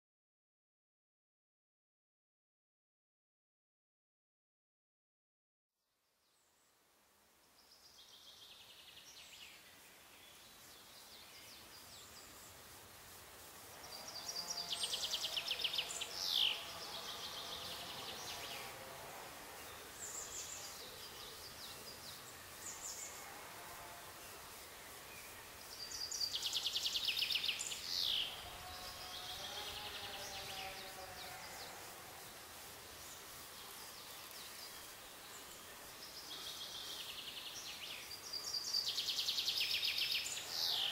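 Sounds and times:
background hiss: 5.8 - 40.9
songbirds singing: 13.8 - 19.0, 19.6 - 23.6, 24.2 - 40.9.

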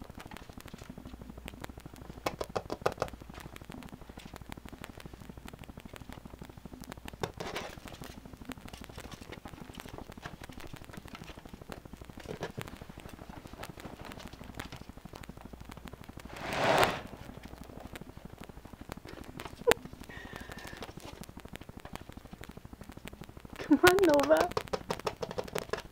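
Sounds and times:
loud rustle: 16.3 - 17.6
claws clicking and scrabbling: 17.0 - 25.9.

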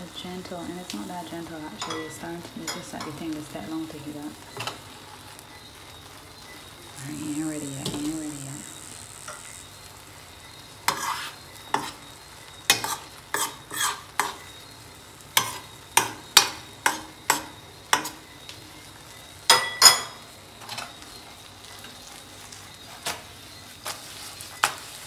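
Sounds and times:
utensil scraping a steel skillet: 10.8 - 12.1, 12.7 - 14.6.

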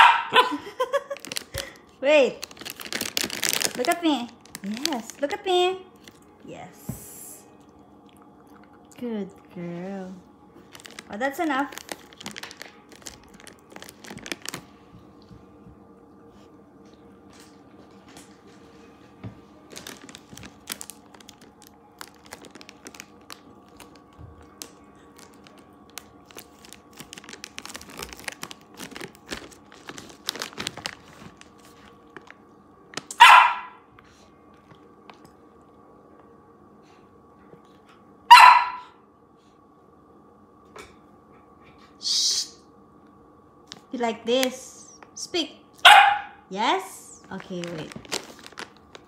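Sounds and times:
puppy barking: 0.0 - 0.6, 33.1 - 33.8, 38.3 - 39.0, 45.8 - 46.4
low steady hum: 0.0 - 49.0.

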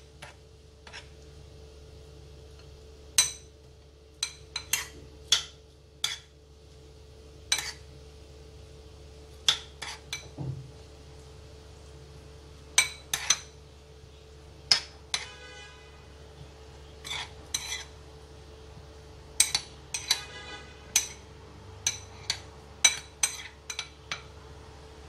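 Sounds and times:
faint steady hum: 0.0 - 25.0
metal spoon clinking ceramic bowl: 12.8 - 13.6, 17.0 - 17.9, 19.4 - 20.3, 20.9 - 21.2, 21.8 - 24.3.

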